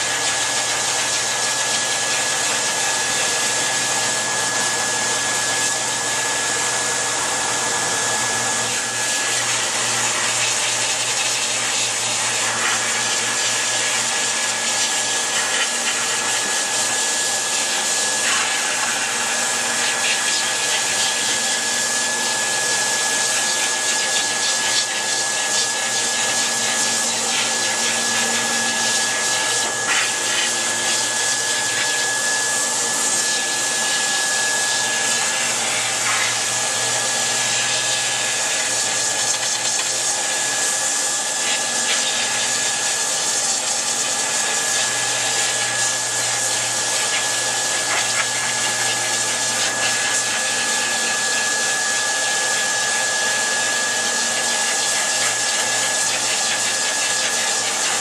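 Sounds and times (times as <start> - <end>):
dryer high whine: 0.0 - 58.0
pet dryer blowing air: 0.0 - 58.0.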